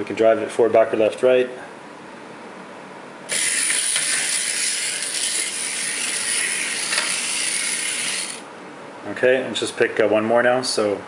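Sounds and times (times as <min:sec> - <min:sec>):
toy robot motors whirring: 0:03.3 - 0:08.5.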